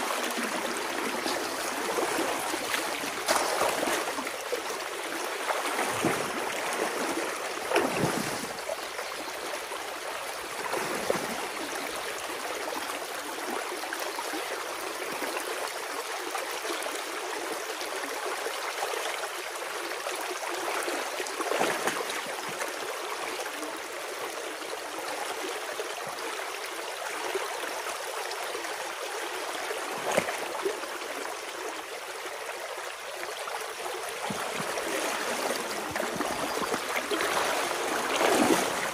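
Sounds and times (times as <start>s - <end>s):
water rushing and gurgling: 0.0s - 15.6s, 28.8s - 38.9s
sharp splashes: 1.2s - 4.2s, 5.5s - 8.5s, 35.9s - 38.9s.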